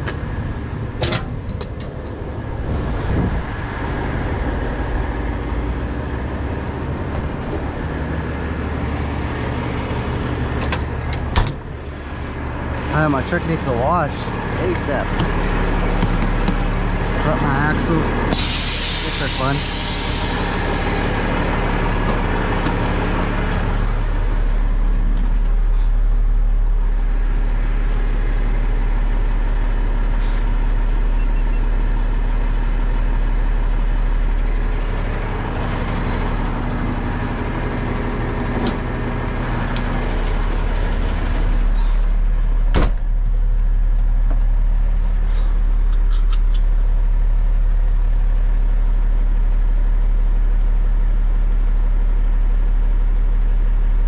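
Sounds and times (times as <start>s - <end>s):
diesel engine idling: 0.0s - 54.0s
air hissing: 18.3s - 20.9s.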